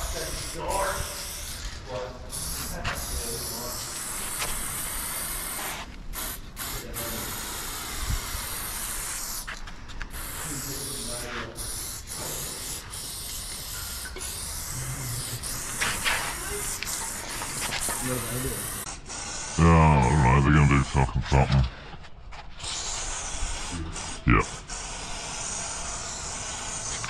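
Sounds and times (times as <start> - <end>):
spray paint can hissing: 1.2 - 19.4.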